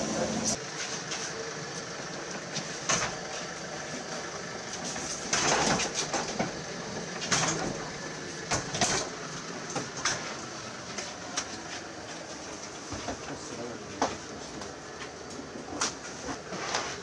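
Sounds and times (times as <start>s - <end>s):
metal trolley clanking and rattling: 4.2s - 10.4s.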